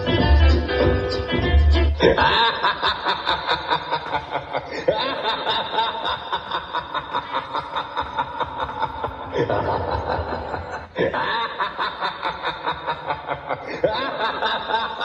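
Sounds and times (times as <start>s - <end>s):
music with a heavy beat: 0.0s - 2.0s
evil mocking laugh: 1.8s - 15.0s.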